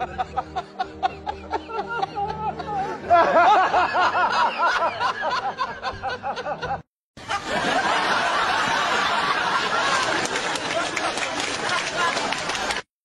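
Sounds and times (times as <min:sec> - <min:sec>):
person giggling: 0:00.0 - 0:03.2.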